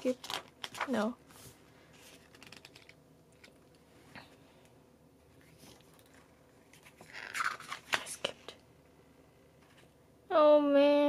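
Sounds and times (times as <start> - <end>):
paper rustling and crackling: 0.0 - 1.1, 1.9 - 3.6.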